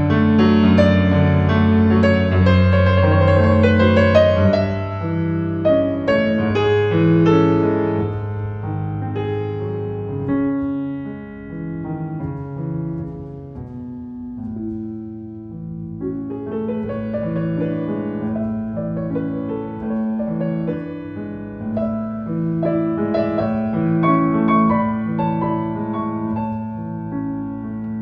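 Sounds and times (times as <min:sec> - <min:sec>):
classical piano music: 0:00.0 - 0:28.0.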